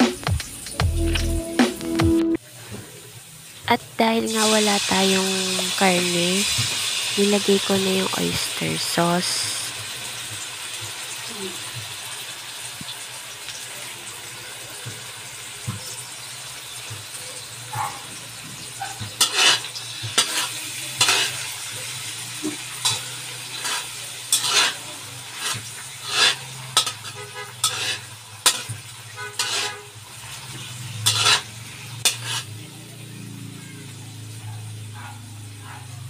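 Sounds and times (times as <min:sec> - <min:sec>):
food sizzling in a wok: 0:02.4 - 0:36.0
metal spatula scraping a wok: 0:18.5 - 0:32.6.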